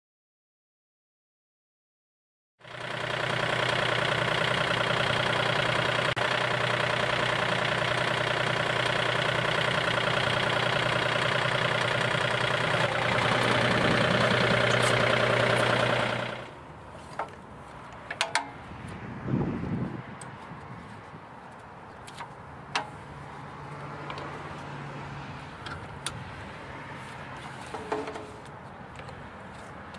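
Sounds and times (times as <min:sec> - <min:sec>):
tractor diesel engine running: 0:02.6 - 0:29.9
hose coupler clicks: 0:18.0 - 0:18.6, 0:22.0 - 0:23.0.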